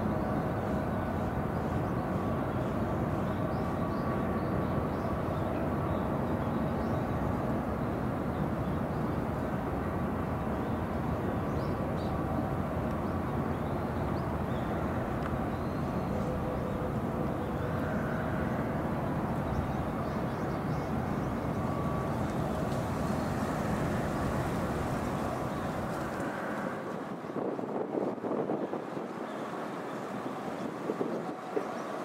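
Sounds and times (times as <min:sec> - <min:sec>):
low rumble and hiss: 0:07.5 - 0:32.0.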